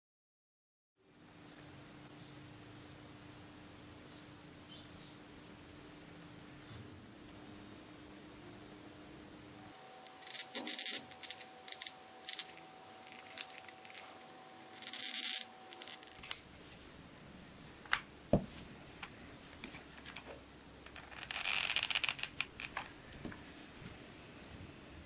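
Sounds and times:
faint steady hum: 0:01.0 - 0:25.0.

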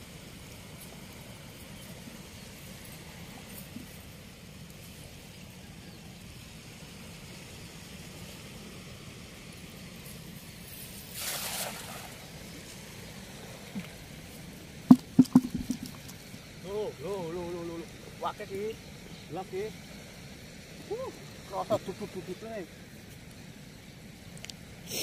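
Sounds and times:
water splash: 0:11.1 - 0:12.3, 0:14.9 - 0:16.1
sharp loud knocks: 0:14.9 - 0:16.0.

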